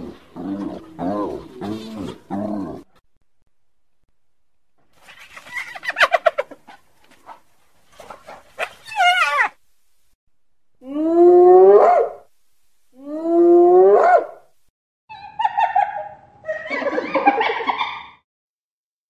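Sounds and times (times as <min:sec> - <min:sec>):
hyena whooping: 0:08.8 - 0:09.6.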